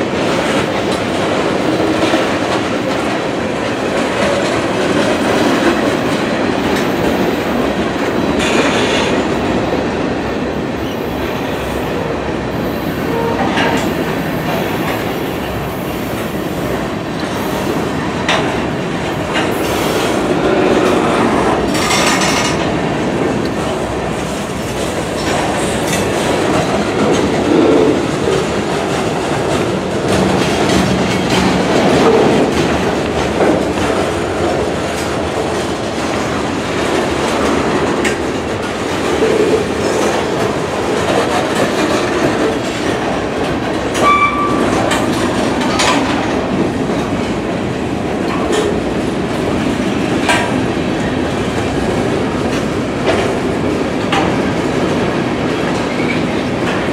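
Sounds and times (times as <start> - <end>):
freight cars rumbling and clattering: 0.0 - 56.9
wheels clicking over rail joints: 24.5 - 47.4.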